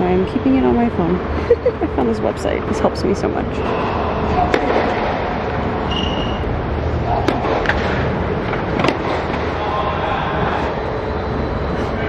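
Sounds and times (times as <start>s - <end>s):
steady background noise: 0.0s - 12.0s
tennis balls struck and bouncing: 4.3s - 5.9s, 7.0s - 9.6s
shoe squeak: 5.8s - 6.5s.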